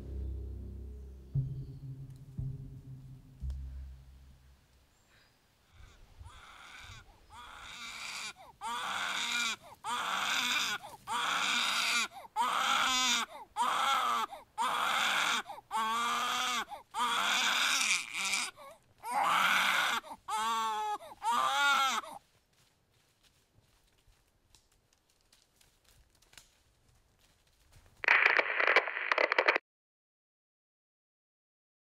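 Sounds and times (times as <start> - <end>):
baby crying: 5.8 - 22.2.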